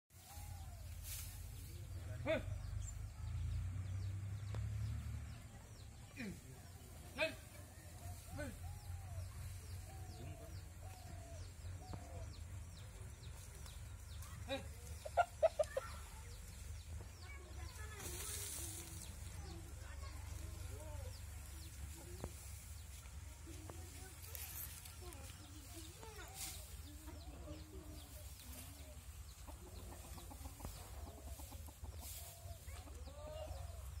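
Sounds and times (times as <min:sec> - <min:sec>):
chickens clucking: 0:06.0 - 0:24.4, 0:25.0 - 0:34.0
chicken clucking: 0:14.8 - 0:16.2, 0:26.9 - 0:33.8.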